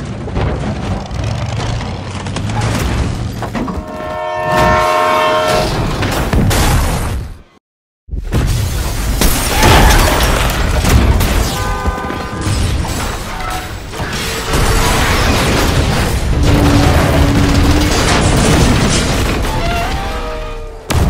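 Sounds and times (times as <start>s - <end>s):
crashing and scraping metal: 9.2s - 20.7s
booms: 14.0s - 21.0s.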